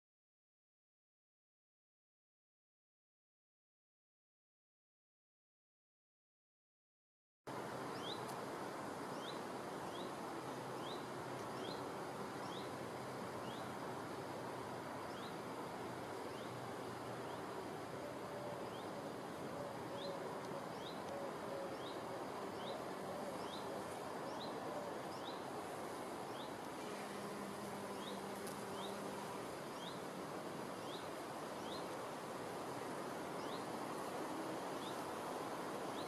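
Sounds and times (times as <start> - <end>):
faint insect buzz: 7.5 - 36.0
steady background hiss: 7.5 - 36.0.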